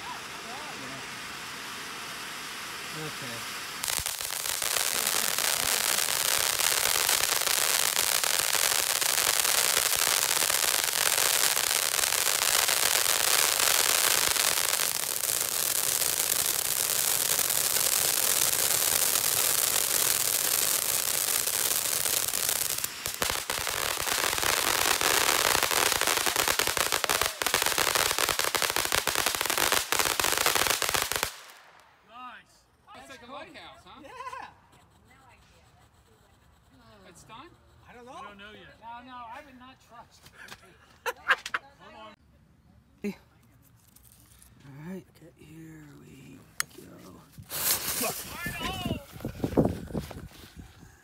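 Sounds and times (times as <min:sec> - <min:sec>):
firework spewing sparks: 0:00.0 - 0:31.8, 0:46.5 - 0:51.0.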